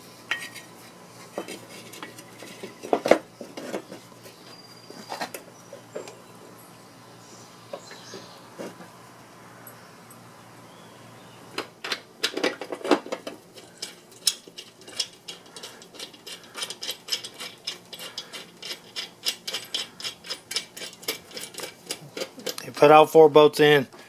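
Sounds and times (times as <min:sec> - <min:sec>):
hand ratchet clicking: 0:13.6 - 0:22.7.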